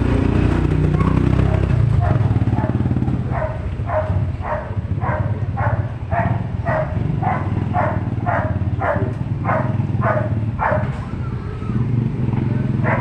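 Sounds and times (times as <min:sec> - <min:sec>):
motorcycle engine running: 0:00.0 - 0:13.0
dog barking: 0:01.0 - 0:11.0, 0:12.8 - 0:13.0.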